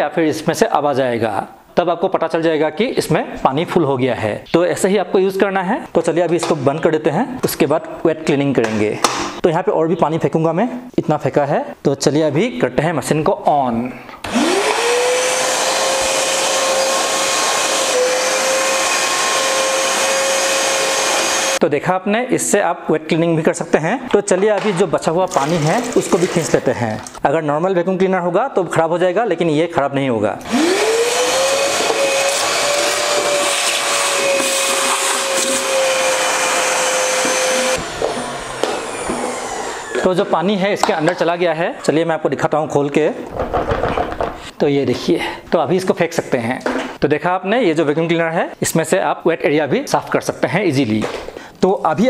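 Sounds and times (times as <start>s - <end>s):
vacuum cleaner motor whining: 14.3s - 21.6s, 30.4s - 40.3s
water sucked up by hose: 25.3s - 27.2s.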